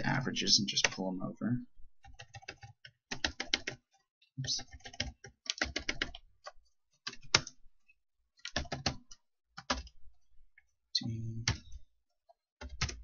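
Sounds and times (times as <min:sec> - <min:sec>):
keyboard keystrokes clicking: 0:04.5 - 0:07.6.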